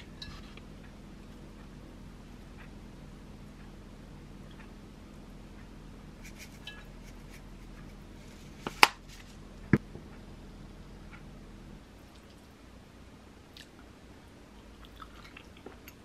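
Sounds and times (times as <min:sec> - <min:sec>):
ceramic bowl clinking: 0:06.6 - 0:07.1.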